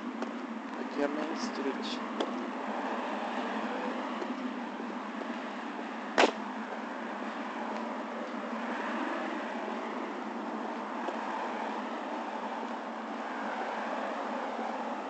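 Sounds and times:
street noise: 0.0s - 15.0s
sharp knock: 6.2s - 6.4s.

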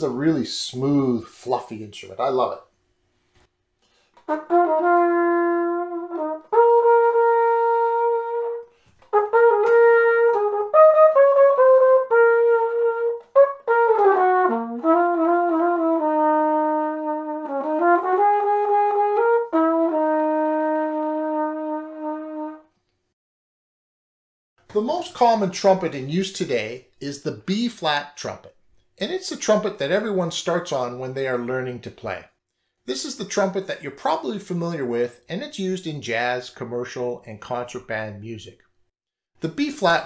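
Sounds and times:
flugelhorn playing slow melody: 4.3s - 22.7s.

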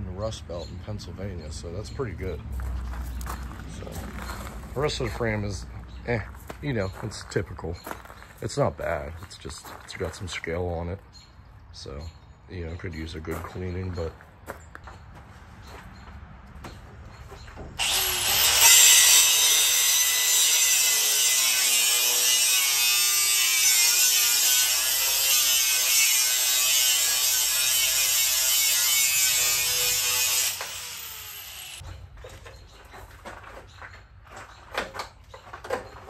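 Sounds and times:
angle grinder cutting steel: 17.8s - 31.8s.

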